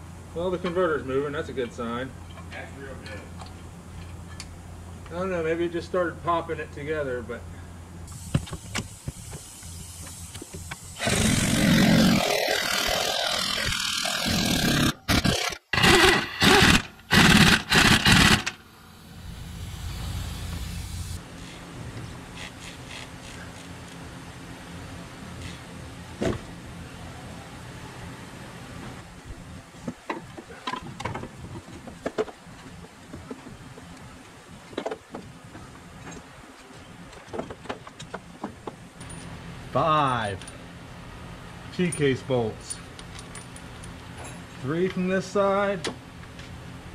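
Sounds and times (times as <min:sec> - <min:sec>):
power tool driving bolts: 0:10.0 - 0:18.6
light metal clinks and knocks: 0:39.0 - 0:39.4, 0:41.8 - 0:44.6.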